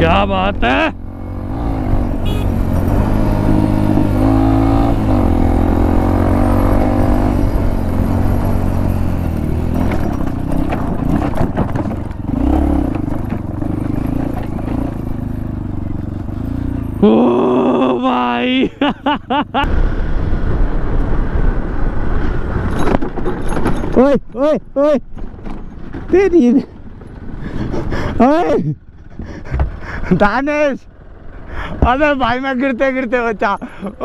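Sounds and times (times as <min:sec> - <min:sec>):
motorcycle engine revving: 0:00.0 - 0:18.5
rattles and knocks over rocks: 0:09.5 - 0:15.4, 0:22.6 - 0:24.4, 0:25.1 - 0:27.3.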